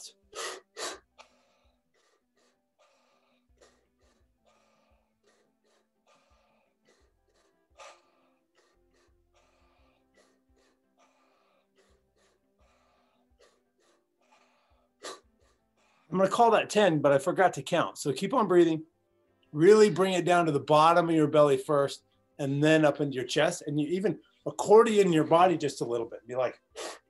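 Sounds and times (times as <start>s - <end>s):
rapid forceful breathing: 0.0s - 16.8s, 26.6s - 27.0s.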